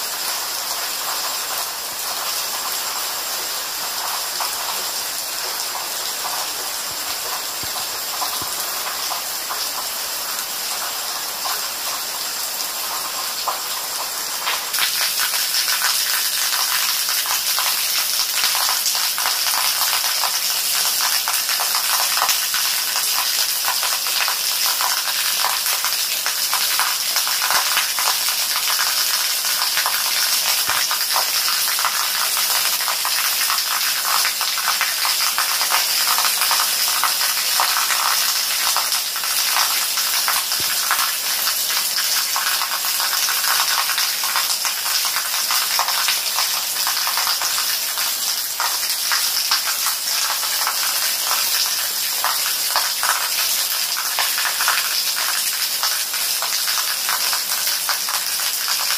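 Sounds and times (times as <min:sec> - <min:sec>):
rain falling: 0:00.0 - 0:58.9.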